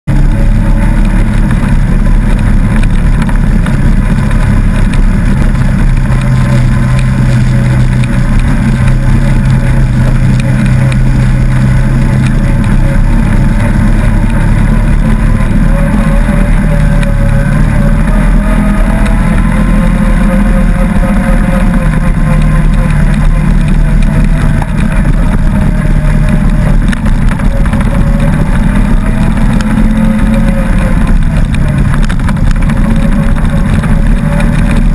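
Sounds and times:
off-road vehicle engine revving: 0.0s - 34.9s.

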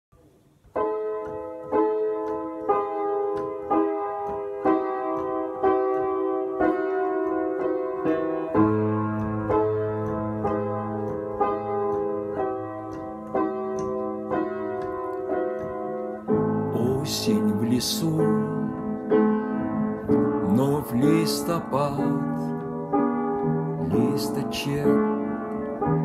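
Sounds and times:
slow piano music: 0.1s - 26.0s.

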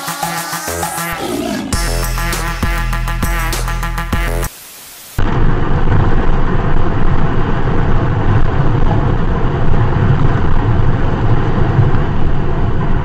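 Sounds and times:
car tyre and wind rumble: 5.2s - 13.0s.

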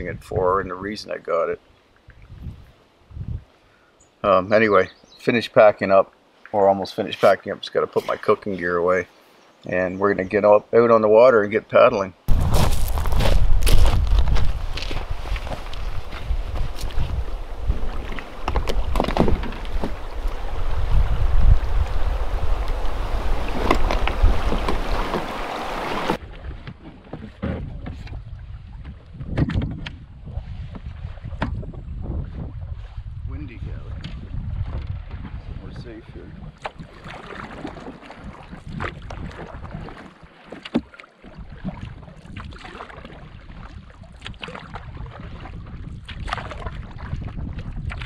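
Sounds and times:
wind buffeting microphone: 0.0s - 0.9s, 2.1s - 3.5s, 12.3s - 40.0s, 41.4s - 48.0s
waves lapping on pebbles: 12.3s - 26.2s
water splashing: 12.3s - 31.6s, 33.9s - 48.0s
paddle knocking against canoe: 14.8s - 30.0s, 30.6s - 31.8s, 36.5s - 48.0s.

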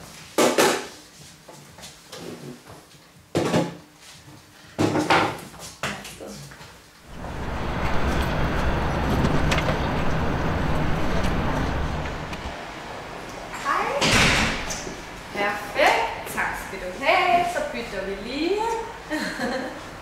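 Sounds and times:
low rumble: 7.1s - 12.6s
city street din: 7.1s - 17.8s.

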